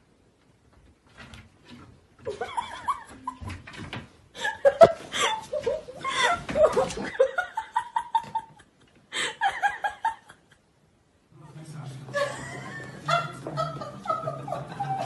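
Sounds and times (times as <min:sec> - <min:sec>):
people laughing heartily: 0:02.3 - 0:03.5, 0:04.4 - 0:10.6, 0:12.1 - 0:15.0.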